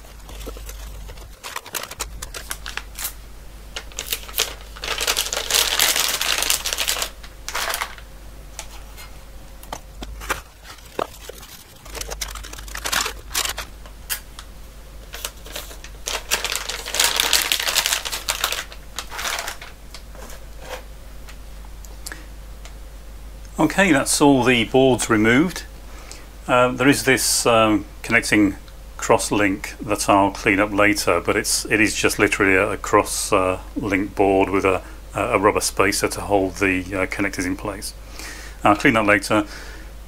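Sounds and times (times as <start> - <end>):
plastic bags crinkling: 0.0 - 3.2, 3.8 - 8.9, 10.0 - 14.2, 15.1 - 20.1.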